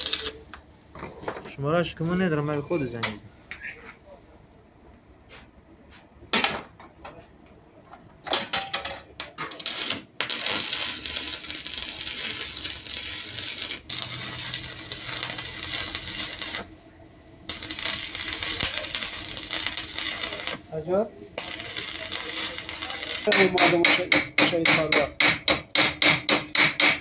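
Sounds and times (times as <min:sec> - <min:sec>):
arc welding crackling and sizzling: 0:00.0 - 0:00.6, 0:09.2 - 0:23.9.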